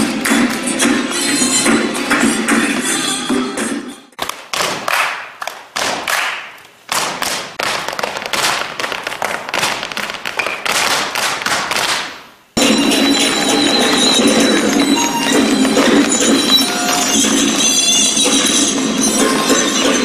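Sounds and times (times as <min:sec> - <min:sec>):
music: 0:00.0 - 0:04.2, 0:12.6 - 0:20.0
feet stamping on stage floor: 0:04.2 - 0:17.6.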